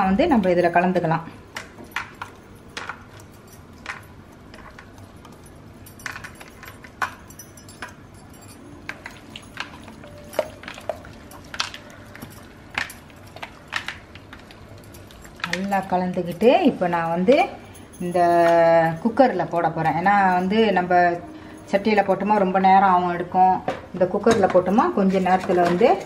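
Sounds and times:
light metallic clinks: 0:01.6 - 0:22.4.

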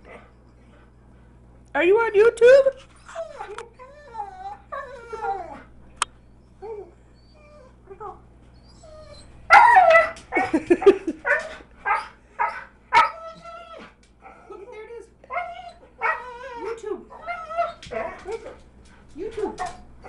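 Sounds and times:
dog whining: 0:02.9 - 0:07.8, 0:08.5 - 0:10.2, 0:11.3 - 0:14.5, 0:15.3 - 0:18.6
dog yipping and barking: 0:09.0 - 0:10.2, 0:11.3 - 0:13.5, 0:15.3 - 0:18.2.

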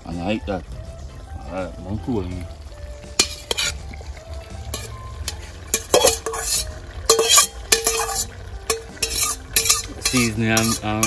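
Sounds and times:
faint frying sizzle: 0:00.0 - 0:11.0
metal spatula scraping steel bowl: 0:03.1 - 0:03.9, 0:04.6 - 0:11.0.

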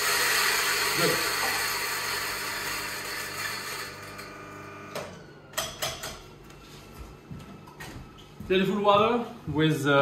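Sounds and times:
electric coffee grinder spinning down: 0:00.0 - 0:05.4.

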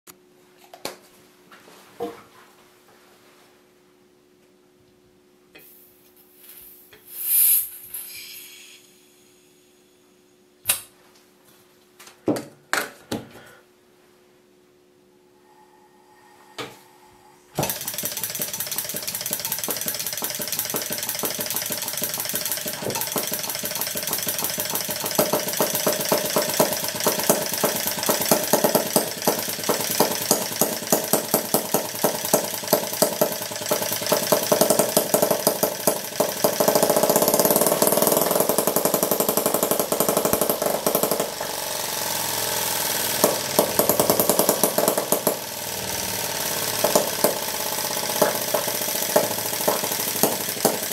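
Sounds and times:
model engine rattling: 0:17.6 - 0:50.9
engine pops: 0:43.0 - 0:50.9.

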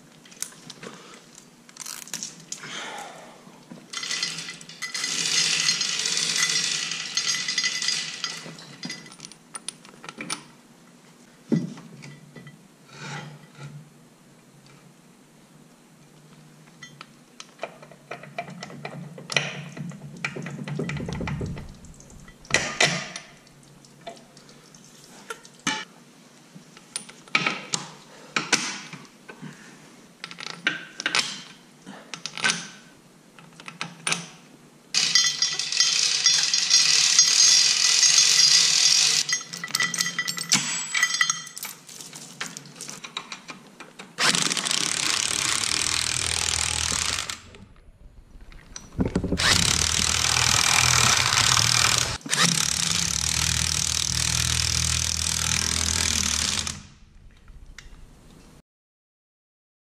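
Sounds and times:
impact wrench running: 0:04.0 - 0:08.4, 0:35.0 - 0:39.3, 0:44.2 - 0:47.8, 0:48.4 - 0:57.7
metal tools clinking: 0:04.0 - 0:09.8, 0:20.7 - 0:23.5, 0:35.0 - 0:43.5.

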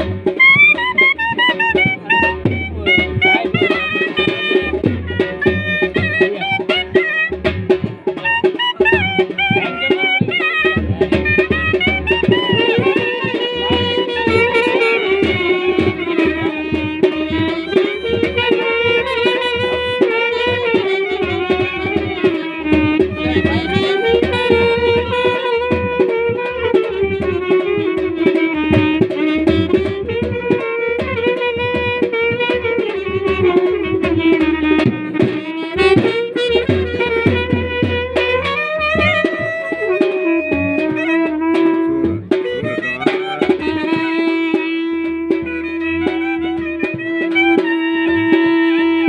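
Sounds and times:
fast hand drum strokes: 0:00.0 - 0:49.0
reed wind instrument melody: 0:00.0 - 0:49.0.

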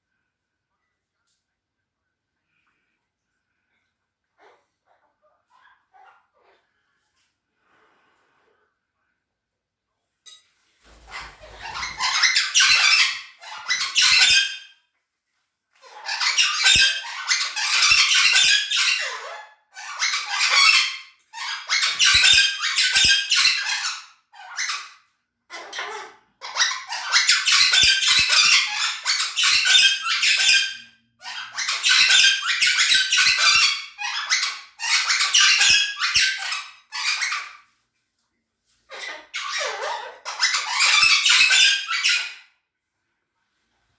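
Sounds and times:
parrots squawking and screeching: 0:04.4 - 0:07.0, 0:10.8 - 0:14.8, 0:15.8 - 0:37.8, 0:38.7 - 0:42.6.

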